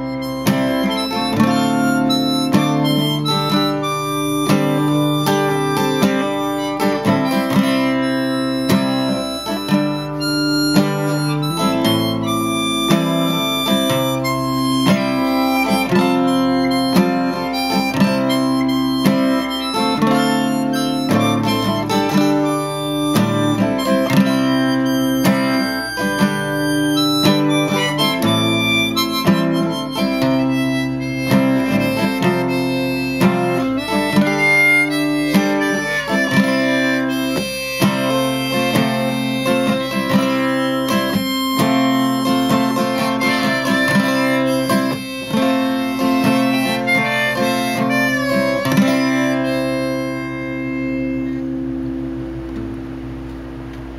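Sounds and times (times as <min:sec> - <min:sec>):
harmonica melody: 0:00.0 - 0:52.3
acoustic guitar strumming chords: 0:00.0 - 0:53.9.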